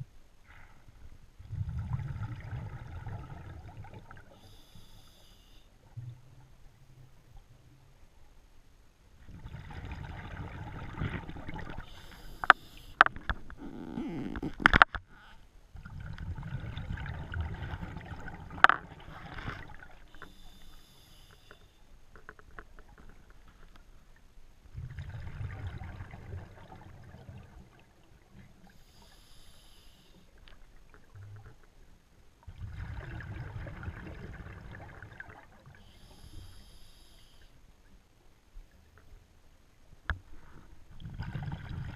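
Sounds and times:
diver breathing through regulator: 20.2s - 21.8s, 35.8s - 37.6s.

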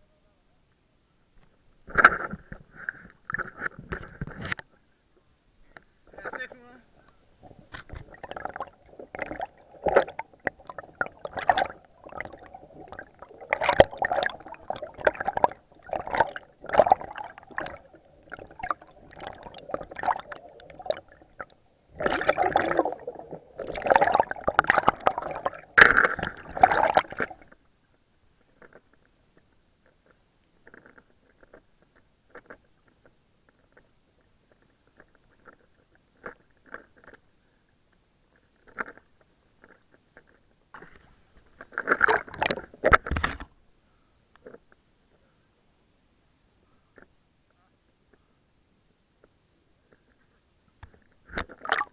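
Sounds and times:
sea water splashing and gurgling: 7.7s - 27.6s, 51.2s - 51.9s.

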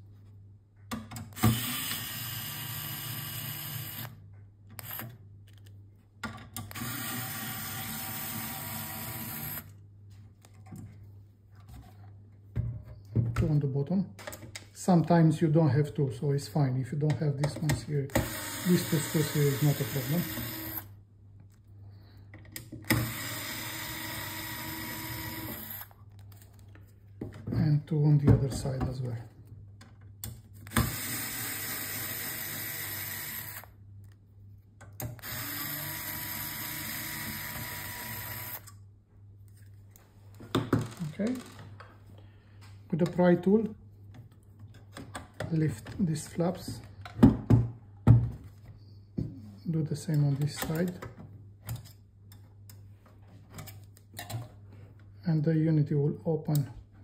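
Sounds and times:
electric screwdriver running: 1.4s - 4.1s, 4.8s - 5.1s, 6.7s - 9.7s, 18.2s - 20.9s, 22.9s - 25.9s, 30.7s - 33.7s, 35.2s - 38.7s.

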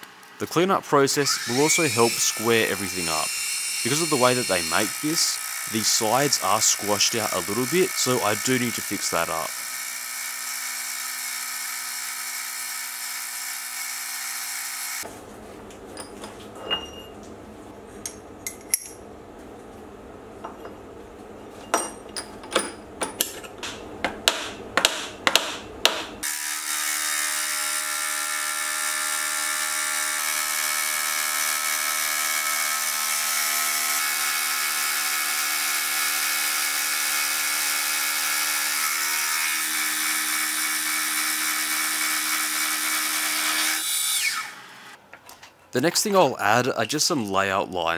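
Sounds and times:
hammer tapping metal: 21.7s - 26.2s.

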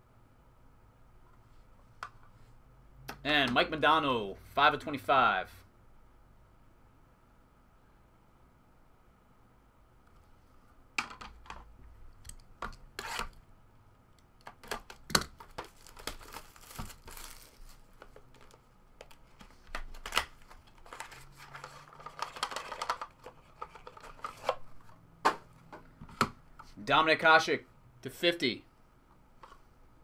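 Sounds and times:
plastic wrapping crinkling and tearing: 14.6s - 24.3s
plastic card cases clacking: 18.0s - 24.6s.

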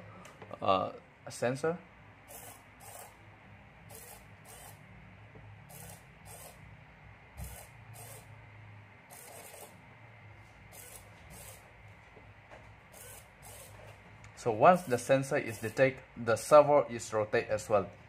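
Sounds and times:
servo motor whirring: 2.2s - 3.2s, 3.9s - 4.8s, 5.7s - 6.6s, 7.4s - 8.3s, 9.1s - 9.8s, 10.7s - 11.6s, 12.9s - 13.9s, 14.8s - 15.8s.

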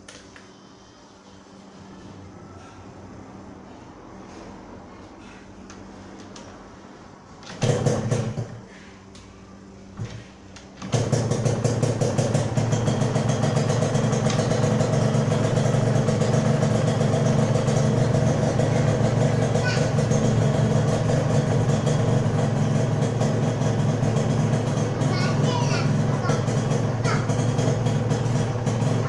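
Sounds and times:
two-stroke engine starting and running: 7.3s - 9.0s, 9.9s - 29.0s.

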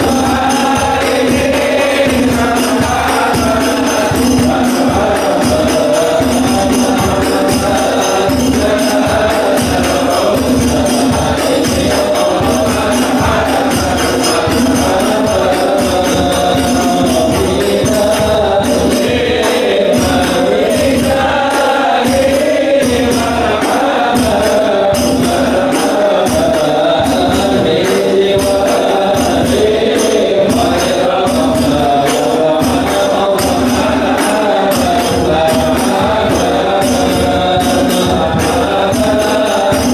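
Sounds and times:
hand drums beating: 0.0s - 39.9s
men singing devotional chant: 0.0s - 39.9s.

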